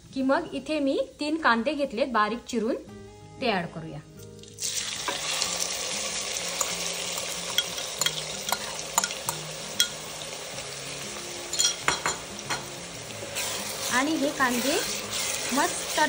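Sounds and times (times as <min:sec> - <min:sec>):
onions sizzling in hot oil: 0:04.2 - 0:16.0.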